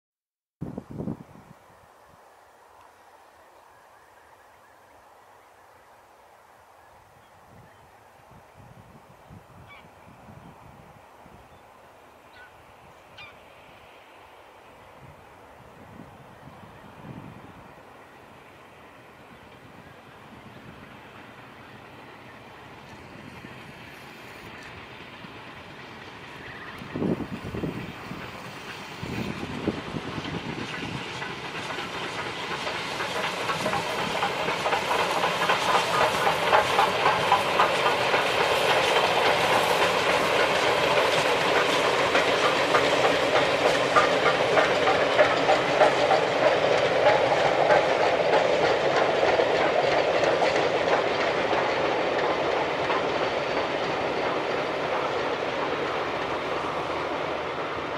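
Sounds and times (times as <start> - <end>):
train rumble: 5.0 - 57.9
train wheels clattering: 20.4 - 57.9.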